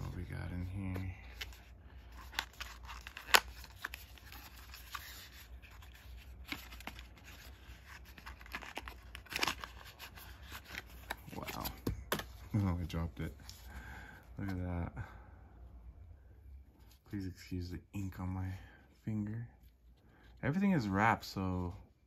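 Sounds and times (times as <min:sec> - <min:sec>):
cardboard rustling: 0:00.0 - 0:13.7.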